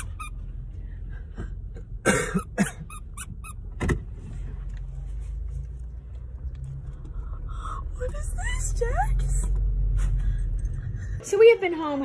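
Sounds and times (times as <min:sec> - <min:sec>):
dog toy squeaking: 0:00.0 - 0:00.5, 0:02.4 - 0:03.7
low car hum: 0:00.0 - 0:11.5.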